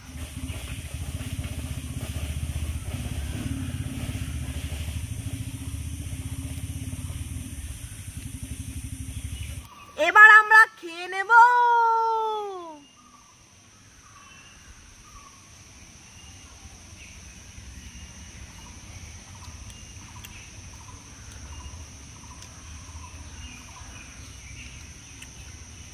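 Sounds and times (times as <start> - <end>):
faint low rumble: 0.0 - 9.9
high-pitched insect drone: 1.7 - 9.7.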